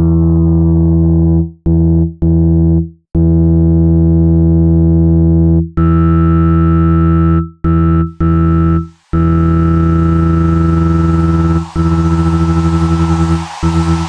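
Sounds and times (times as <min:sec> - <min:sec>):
synthesized low tone pulses: 0:05.8 - 0:14.0
higher steady tone: 0:08.2 - 0:14.0.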